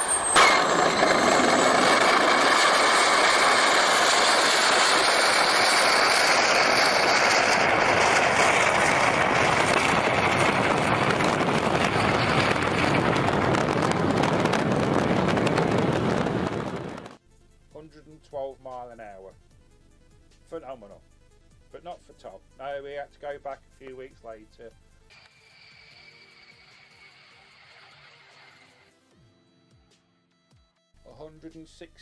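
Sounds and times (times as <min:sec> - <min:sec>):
high whine: 0:00.0 - 0:17.2, 0:25.1 - 0:28.9
jet engine roaring: 0:00.0 - 0:17.2, 0:25.1 - 0:28.9.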